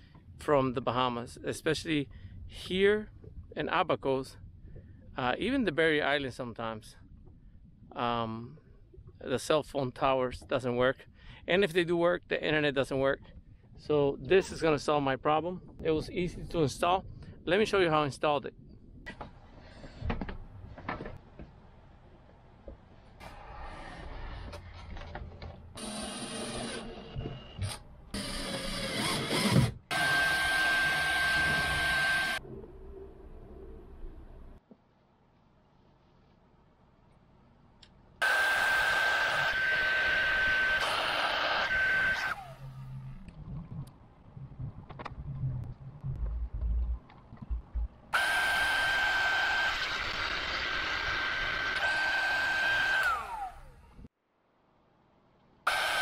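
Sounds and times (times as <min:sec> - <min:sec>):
low irregular rumbles: 0:00.0 - 0:23.2, 0:32.4 - 0:38.2, 0:42.6 - 0:48.2
power drill whining: 0:25.8 - 0:32.4, 0:38.2 - 0:42.8, 0:48.2 - 0:54.1, 0:55.7 - 0:56.0.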